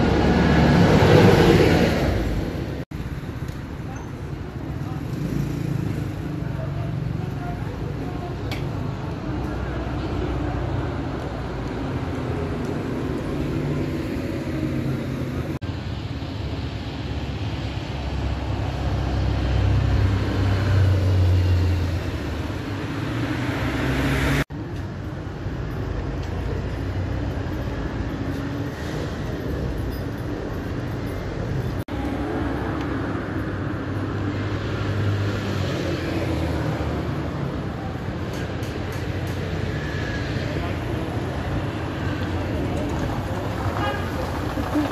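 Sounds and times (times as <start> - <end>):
car engines and tyre noise: 0.0 - 44.9
bus pulling past: 39.3 - 44.9.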